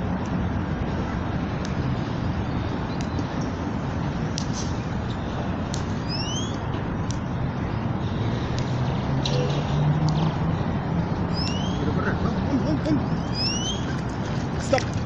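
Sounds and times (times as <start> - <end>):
road traffic rumble: 0.0 - 15.0
wind: 0.0 - 15.0
short rising chirps: 11.3 - 11.9, 13.2 - 14.0.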